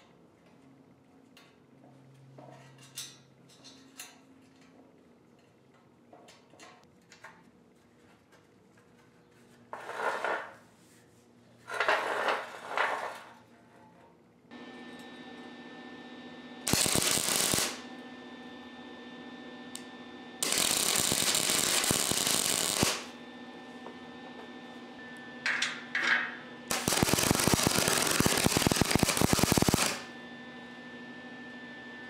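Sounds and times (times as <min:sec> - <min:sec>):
welding arc crackle: 0:16.6 - 0:17.9, 0:20.4 - 0:23.2, 0:26.7 - 0:30.1.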